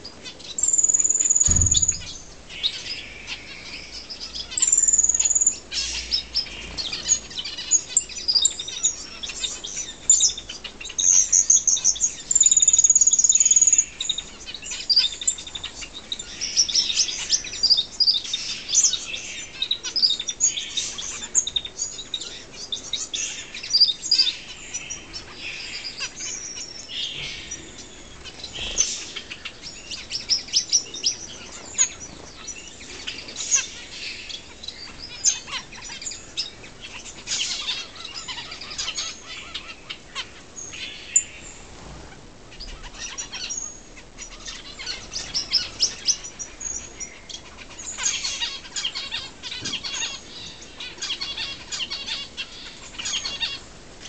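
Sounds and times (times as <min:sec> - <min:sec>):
finches chirping and twittering: 0:00.0 - 0:53.8
high whistled bird notes: 0:00.6 - 0:02.8.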